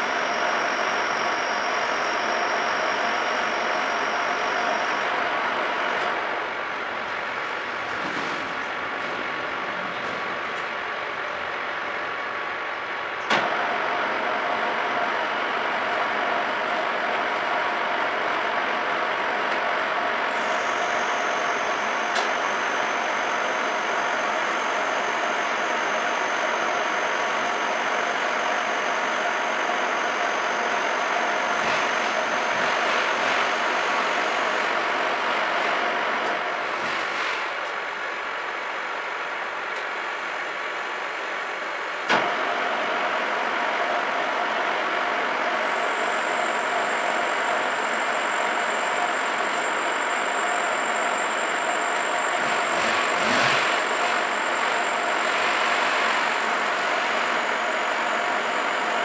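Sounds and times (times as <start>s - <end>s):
milling machine whirring: 42.1s - 59.0s.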